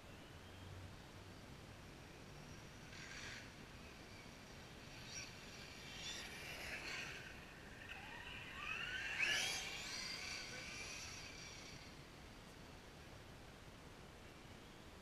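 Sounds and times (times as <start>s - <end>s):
rc truck electric motor whining: 2.0s - 12.6s.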